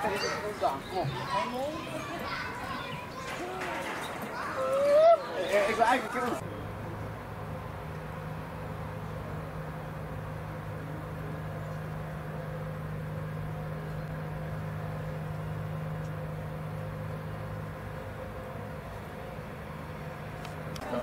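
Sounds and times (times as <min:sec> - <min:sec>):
low machine hum: 0:06.3 - 0:21.0.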